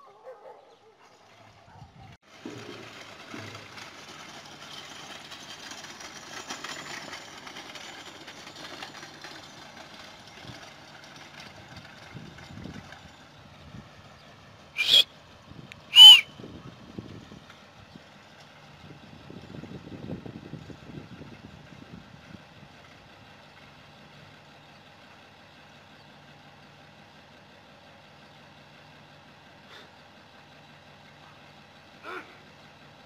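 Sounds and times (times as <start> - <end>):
cart rattling over gravel: 0.6 - 29.4
short loud calls: 14.8 - 15.1, 15.9 - 16.3.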